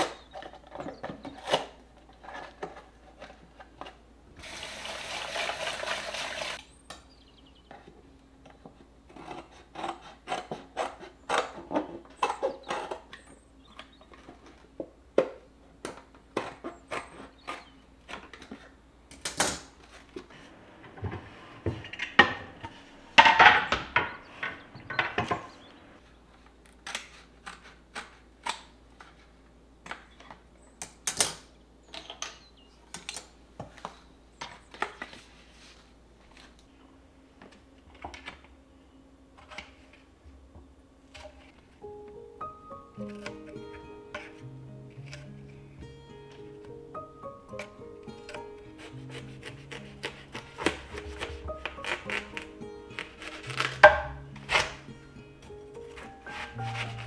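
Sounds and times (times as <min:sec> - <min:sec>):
scissors cutting cardboard: 0:09.1 - 0:11.8, 0:47.6 - 0:54.9, 0:55.8 - 0:57.0
rustling scrape: 0:55.8 - 0:57.0.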